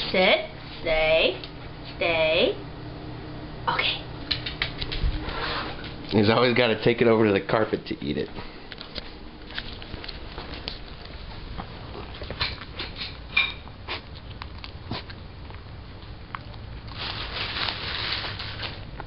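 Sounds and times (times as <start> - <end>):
dog chewing crunchily: 8.7 - 19.0.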